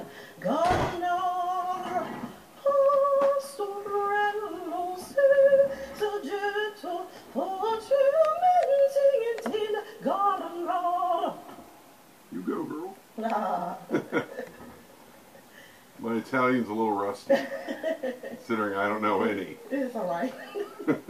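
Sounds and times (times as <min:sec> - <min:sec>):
woman singing unaccompanied: 0:00.0 - 0:11.8, 0:13.1 - 0:14.8, 0:19.6 - 0:21.0.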